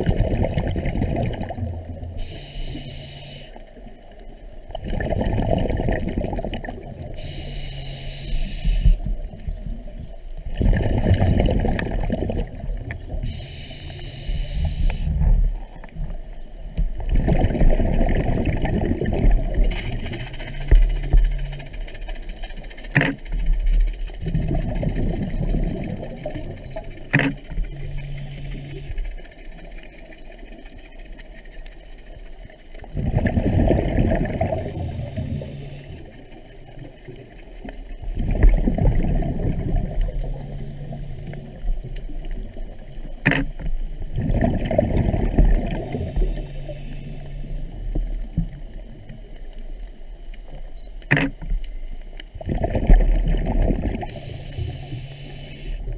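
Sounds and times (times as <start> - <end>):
hissing inhalation: 2.2 - 3.6, 7.2 - 9.0, 13.3 - 15.2, 54.1 - 55.8
bubbling exhalation: 4.8 - 6.9, 10.6 - 12.7, 33.0 - 34.8.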